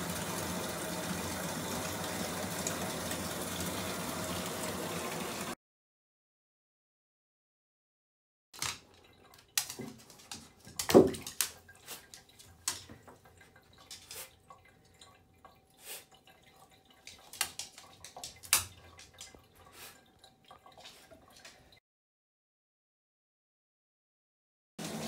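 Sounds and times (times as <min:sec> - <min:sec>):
water drips and small splashes: 0:00.0 - 0:05.6, 0:08.6 - 0:21.8
knocks in tub: 0:10.8 - 0:11.4.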